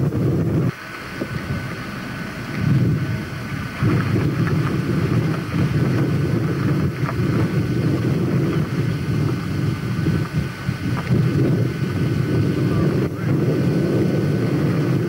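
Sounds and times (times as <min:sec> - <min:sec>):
vehicle engines rumbling: 0:00.0 - 0:15.0
wind noise on microphone: 0:00.0 - 0:15.0.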